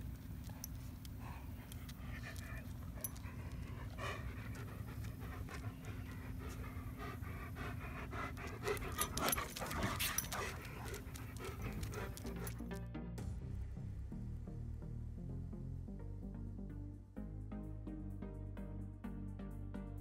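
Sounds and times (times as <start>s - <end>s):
dog panting: 0.0s - 12.8s.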